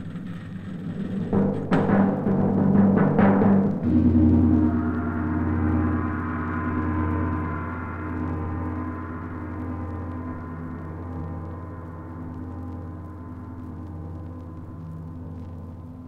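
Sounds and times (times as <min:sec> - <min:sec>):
sharp drum strikes: 0:00.0 - 0:06.2
deep gong stroke ringing: 0:01.4 - 0:15.0.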